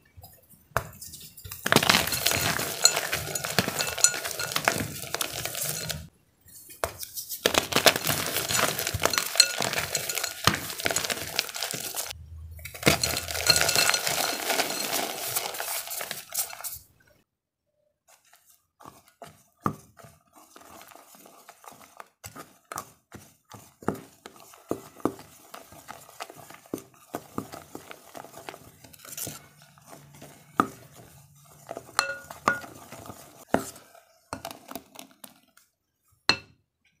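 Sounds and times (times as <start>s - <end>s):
spatula scraping glass bowl: 1.0s - 7.2s, 8.0s - 16.9s, 23.9s - 34.7s
clinks against glass: 8.8s - 11.0s, 12.8s - 14.9s, 32.0s - 32.6s.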